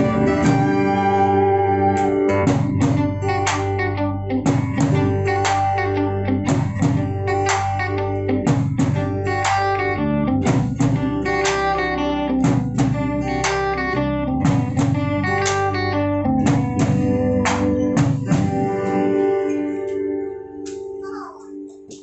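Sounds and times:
acoustic guitar: 0.0 - 22.0
drum kit beat: 0.0 - 22.0
electric guitar: 0.0 - 22.0.

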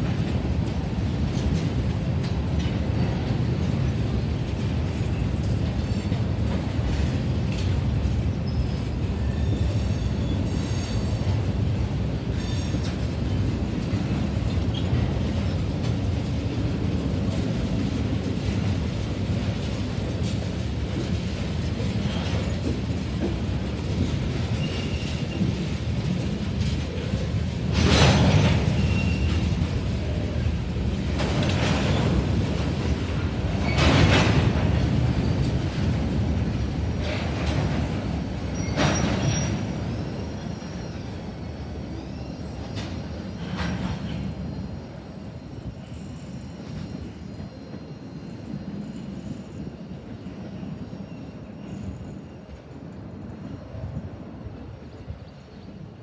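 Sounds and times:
loud train clanks: 0.0 - 56.0
train wheels rumbling on rail: 0.0 - 56.0
high wheel squeals: 8.4 - 11.2, 24.6 - 25.5, 28.4 - 29.5, 38.5 - 41.2.

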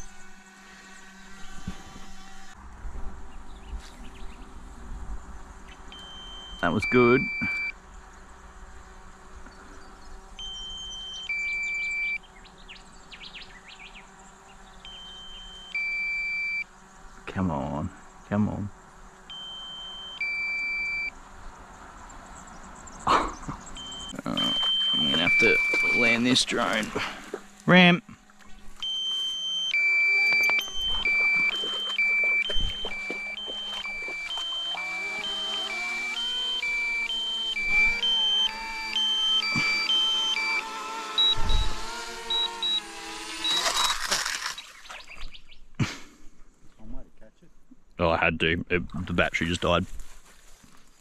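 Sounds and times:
birds chirping: 0.0 - 2.6, 3.2 - 47.9
two-tone electronic beep: 6.0 - 7.7, 10.4 - 12.2, 14.9 - 16.6, 19.3 - 21.1, 23.8 - 26.8, 28.8 - 41.6, 42.2 - 43.9.

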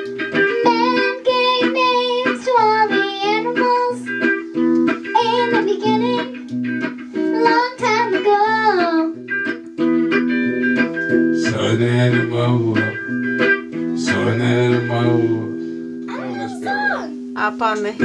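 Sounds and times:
electric guitar playing: 0.0 - 18.0
girl singing: 0.4 - 4.2, 5.1 - 6.5, 7.2 - 9.2, 16.1 - 17.1
man singing: 11.4 - 13.1, 14.0 - 15.7.

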